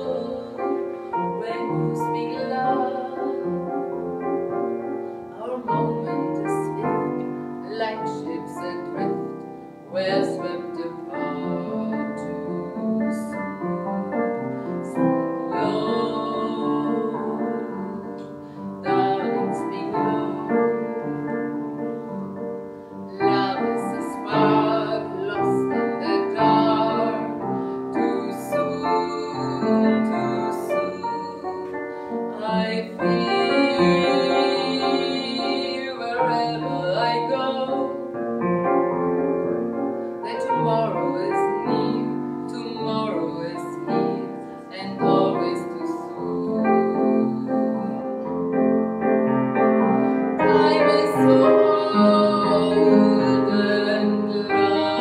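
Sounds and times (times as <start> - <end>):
piano accompaniment: 0.0 - 55.0
woman singing show tune: 1.4 - 3.5, 5.4 - 9.2, 9.9 - 13.4, 14.8 - 18.2, 18.8 - 20.8, 23.1 - 31.6, 32.4 - 38.0, 40.2 - 48.2.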